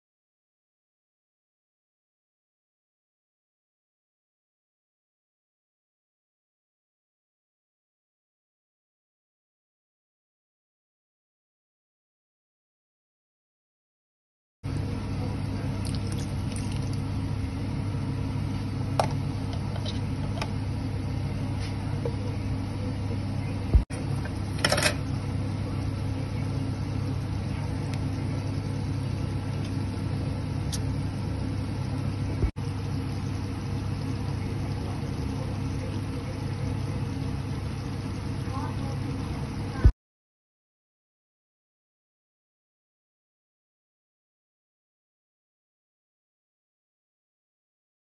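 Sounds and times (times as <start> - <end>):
low mechanical hum: 14.7 - 40.0.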